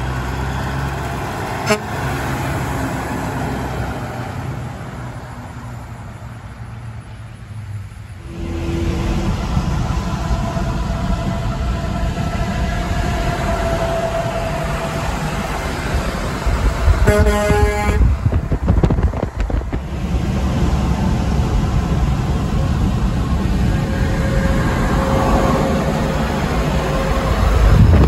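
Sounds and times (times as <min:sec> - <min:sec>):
highway road noise: 0:00.0 - 0:28.0
truck air horn blast: 0:01.6 - 0:02.3, 0:08.2 - 0:09.4, 0:16.9 - 0:18.2.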